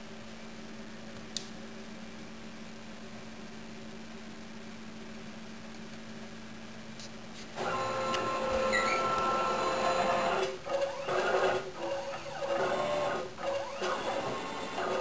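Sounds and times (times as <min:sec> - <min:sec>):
stepper motors whining: 0:07.6 - 0:15.0.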